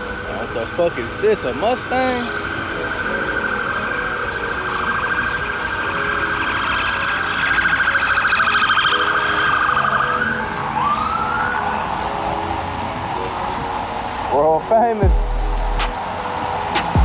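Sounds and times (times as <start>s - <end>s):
electronic siren: 2.3s - 12.3s.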